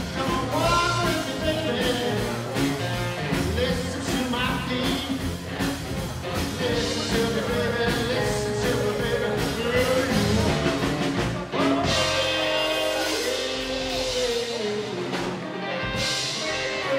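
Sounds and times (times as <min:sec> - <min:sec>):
acoustic guitar: 0:00.0 - 0:16.9
drum kit: 0:00.0 - 0:16.9
electric guitar: 0:00.0 - 0:16.9
voice holding long notes: 0:11.5 - 0:15.0.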